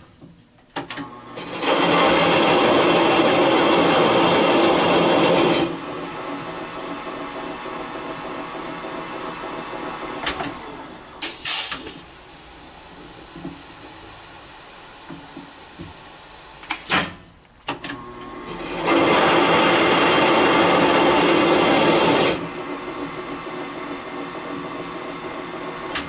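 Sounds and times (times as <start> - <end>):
short loud hiss: 11.2 - 11.9.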